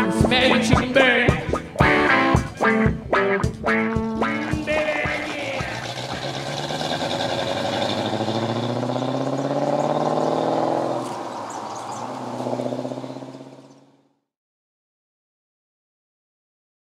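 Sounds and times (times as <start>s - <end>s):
car engine accelerating hard: 4.0s - 14.1s.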